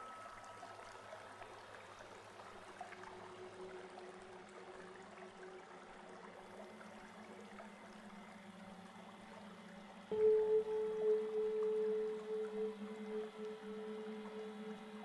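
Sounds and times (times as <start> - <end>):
faint low held tones: 10.1 - 15.0
loud steady pure tone: 10.1 - 15.0.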